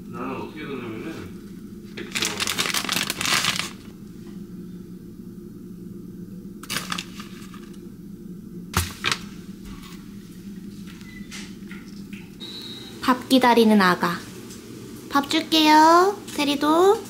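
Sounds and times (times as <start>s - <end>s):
steady low hum: 0.0s - 17.0s
plastic bag rustling: 1.9s - 4.0s, 6.6s - 7.8s.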